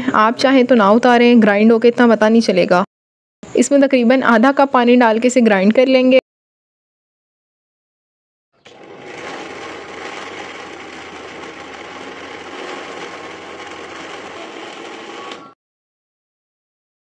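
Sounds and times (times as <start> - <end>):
blender motor grinding: 8.6 - 15.6.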